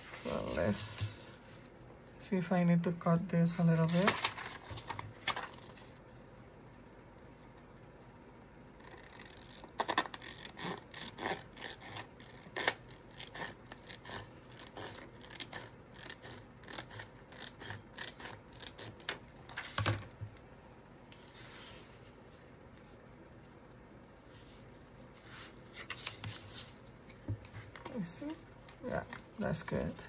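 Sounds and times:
paper rustle: 3.8s - 5.9s.

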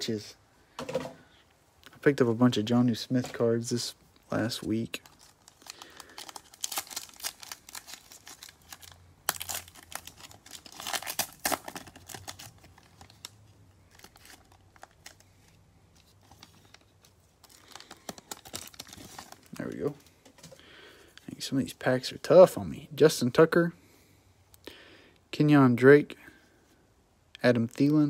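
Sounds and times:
plastic wrapper crinkling and tearing: 4.4s - 20.5s
cards rustling and clicking: 4.5s - 20.6s.

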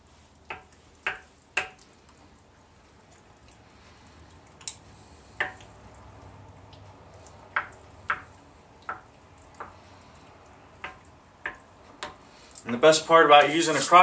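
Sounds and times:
spoon stirring chunky soup: 0.3s - 12.6s
spoon knocking against crock: 5.4s - 5.6s.

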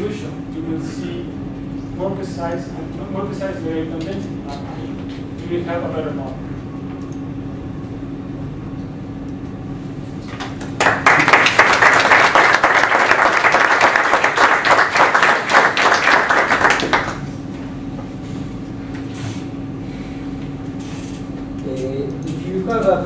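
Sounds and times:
steady low hum: 0.0s - 23.0s
audience applauding: 10.6s - 17.3s.

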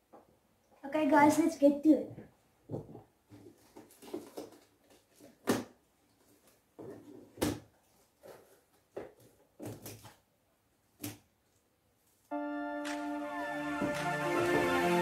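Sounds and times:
tape and plastic crinkling: 3.5s - 5.5s.

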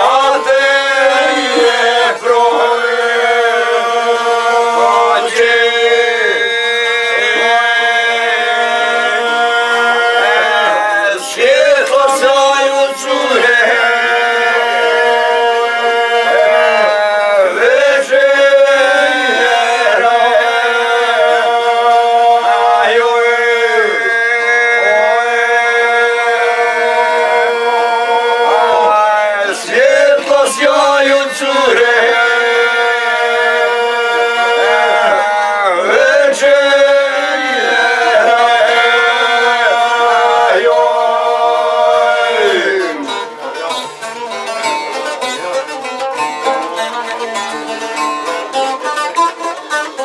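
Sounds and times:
steady held drone tone: 0.0s - 3.8s
men singing together: 0.0s - 43.8s.

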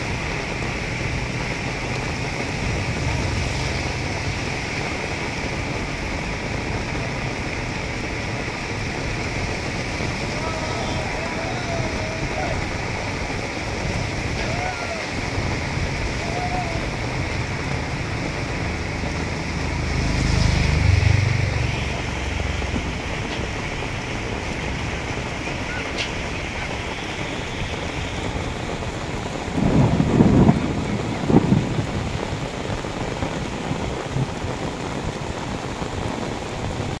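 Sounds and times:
low rumble: 0.0s - 14.5s, 15.1s - 25.4s
heavy rain: 0.0s - 37.0s
water rushing from culvert: 0.0s - 37.0s.

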